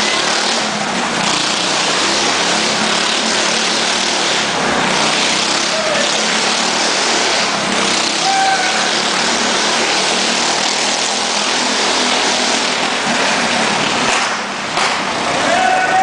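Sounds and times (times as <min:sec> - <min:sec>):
stunt vehicle engine: 0:00.0 - 0:16.0.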